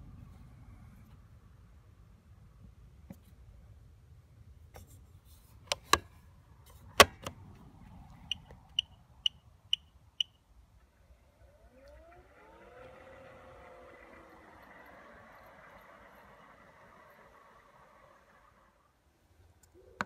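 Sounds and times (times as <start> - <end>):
mower motors whining: 10.8 - 19.1.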